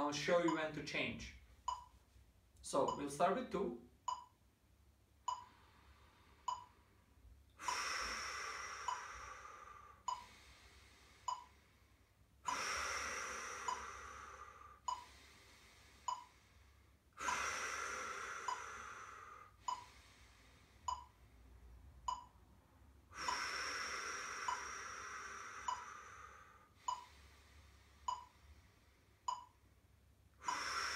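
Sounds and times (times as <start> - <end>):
metronome clicking: 2.9 - 3.2
quiet in-breaths: 5.3 - 29.7, 30.3 - 30.9
person breathing out: 7.6 - 11.8, 12.4 - 21.2, 23.1 - 28.8, 30.4 - 30.9.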